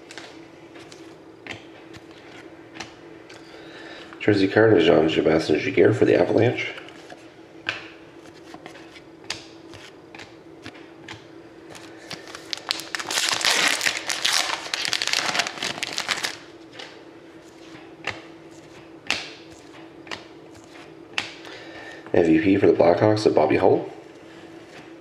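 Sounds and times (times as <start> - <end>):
foil wrapper tearing and crinkling: 12.1 - 16.5.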